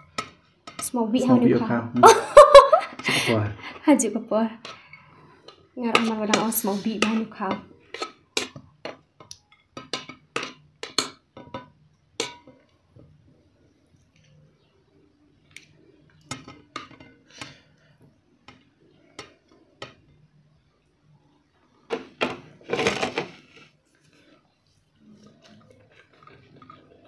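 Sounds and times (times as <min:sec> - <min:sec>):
cutlery clinking on plates: 0:06.0 - 0:12.6.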